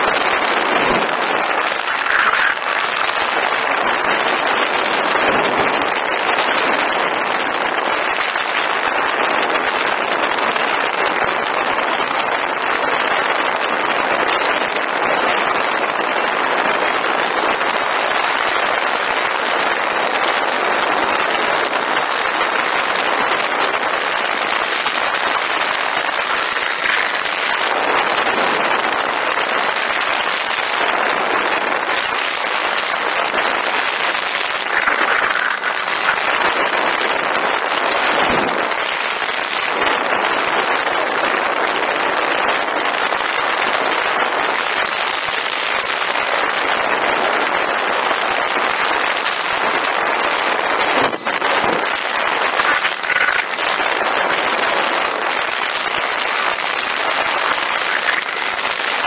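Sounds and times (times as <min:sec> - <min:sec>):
wind rushing: 0:00.0 - 0:08.0
propeller whirring: 0:00.0 - 0:59.0.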